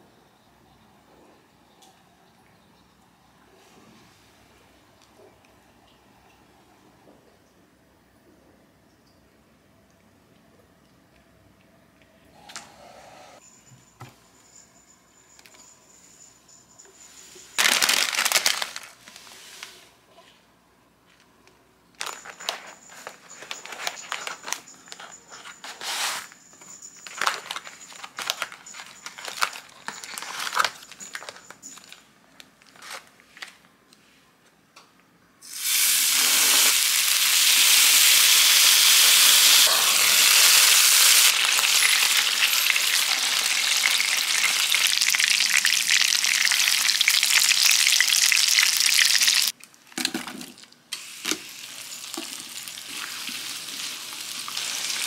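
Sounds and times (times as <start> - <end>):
food packaging crinkling: 17.6 - 19.7, 22.0 - 26.3, 27.0 - 33.7, 39.9 - 55.0
meat sizzling in a frying pan: 35.5 - 49.5, 51.0 - 55.0.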